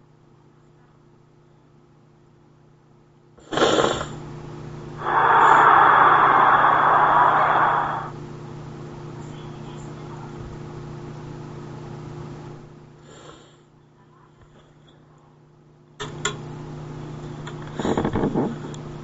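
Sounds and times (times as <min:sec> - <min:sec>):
steady low hum: 0:00.0 - 0:19.0
background hiss: 0:03.4 - 0:08.3.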